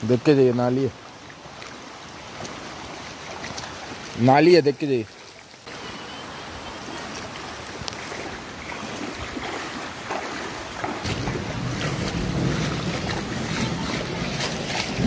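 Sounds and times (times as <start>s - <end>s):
water rushing: 0.0s - 15.0s
wind buffeting microphone: 7.4s - 15.0s.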